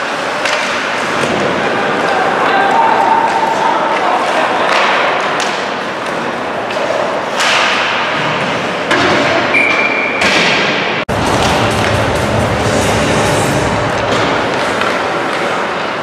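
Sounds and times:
ice rink din: 3.2s - 16.0s.

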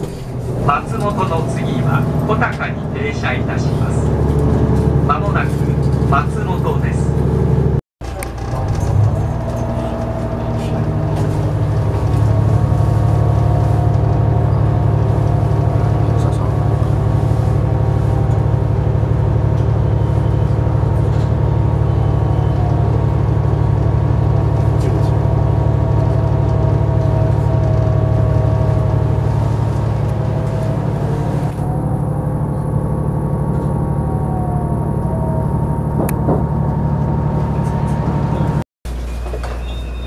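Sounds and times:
rail rumble: 0.0s - 40.0s
train engine hum: 0.0s - 40.0s
thin gliding whine: 8.5s - 38.6s.

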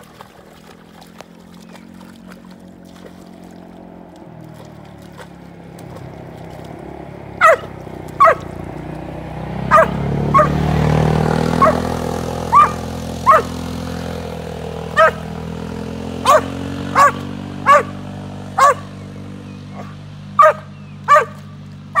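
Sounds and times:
dog barking: 7.4s - 8.5s, 9.7s - 10.6s, 11.5s - 11.9s, 12.5s - 13.6s, 14.9s - 15.3s, 16.2s - 18.9s, 19.7s - 22.0s.

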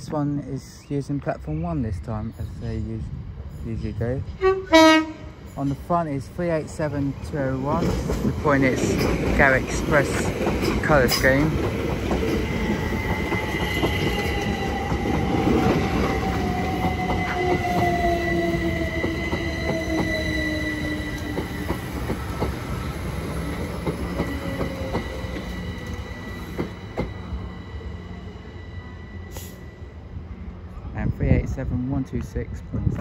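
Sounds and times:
high steady wheel squeal: 12.5s - 22.0s, 23.4s - 30.2s.

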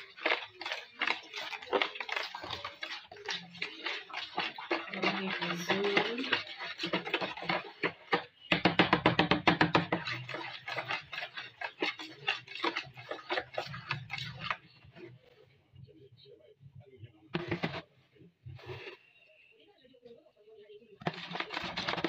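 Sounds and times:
hand squelching mashed pumpkin: 0.0s - 15.2s, 21.0s - 22.0s.

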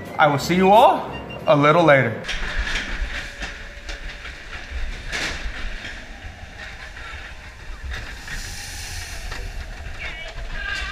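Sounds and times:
roller coaster rumbling on track: 0.0s - 10.9s
wheels rattling clacks: 2.2s - 10.9s.

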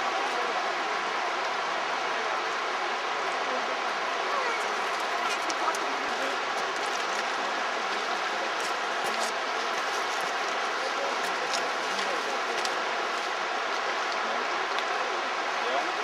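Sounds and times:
river water rushing over gravel: 0.0s - 16.0s.

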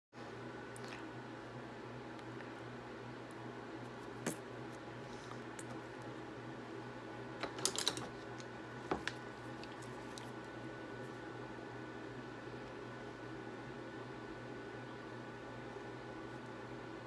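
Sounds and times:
electric desk fan humming: 0.2s - 17.0s.

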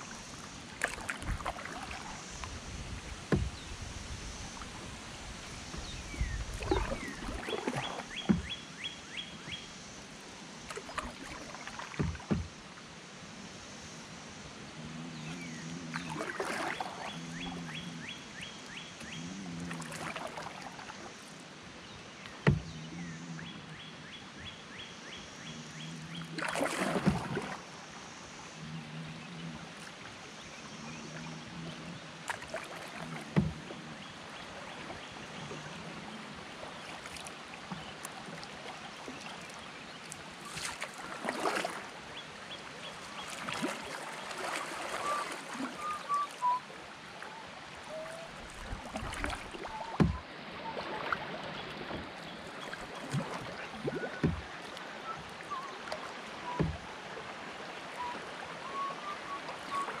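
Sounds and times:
river water rippling: 0.0s - 60.0s
sharp knocks on canoe: 3.3s - 3.8s, 6.6s - 8.6s, 11.9s - 12.6s, 22.4s - 22.8s, 26.4s - 27.6s, 33.1s - 33.8s, 49.9s - 50.3s, 53.1s - 54.7s, 56.4s - 56.9s.

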